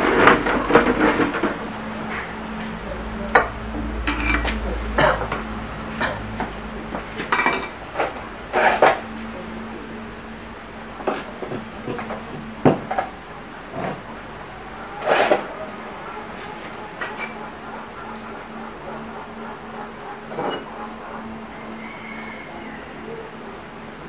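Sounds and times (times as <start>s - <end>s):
metal tools clinking: 3.4s - 6.2s, 7.2s - 9.0s, 17.0s - 17.4s.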